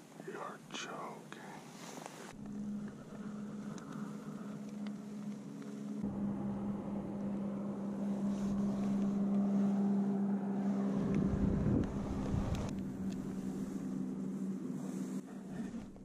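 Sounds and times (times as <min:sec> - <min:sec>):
boat engine droning: 0:02.3 - 0:16.0
wind buffeting microphone: 0:11.0 - 0:14.1.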